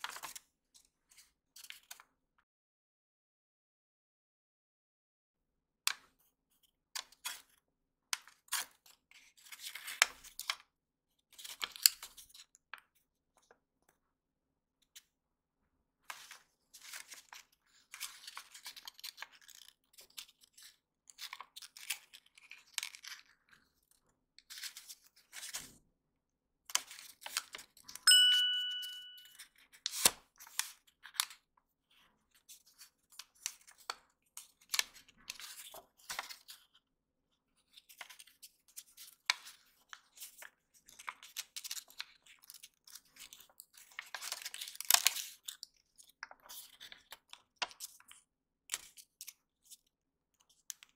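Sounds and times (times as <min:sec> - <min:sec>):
paper crinkling and rustling: 0:00.0 - 0:00.4, 0:08.2 - 0:10.6, 0:11.3 - 0:12.6, 0:16.0 - 0:25.8, 0:29.5 - 0:36.8, 0:37.5 - 0:49.8
crisp clicks of paper creases: 0:00.0 - 0:02.1, 0:11.3 - 0:14.0, 0:16.0 - 0:25.8, 0:26.7 - 0:28.0, 0:29.4 - 0:36.8, 0:37.5 - 0:50.9
clear ding: 0:28.1 - 0:29.4.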